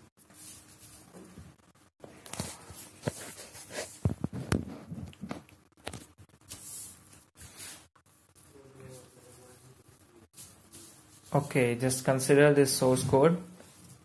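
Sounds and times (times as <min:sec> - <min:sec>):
paper rustling and crinkling: 0:02.2 - 0:07.9.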